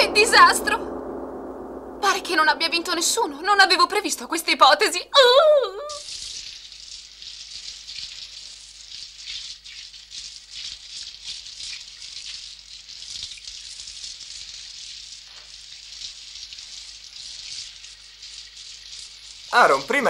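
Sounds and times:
shower water spraying: 0:05.9 - 0:20.0.

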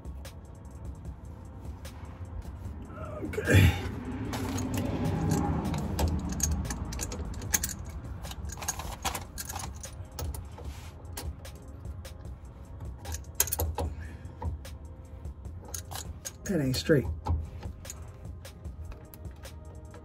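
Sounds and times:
hand tools clinking: 0:03.4 - 0:11.4, 0:12.9 - 0:14.5, 0:15.6 - 0:19.3.

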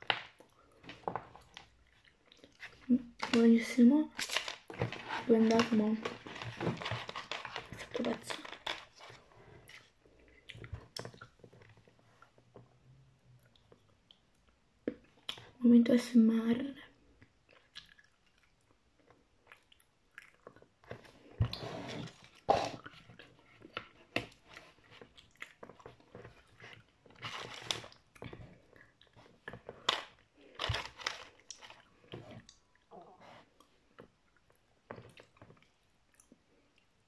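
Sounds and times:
chewing hard chocolate: 0:17.4 - 0:36.9.

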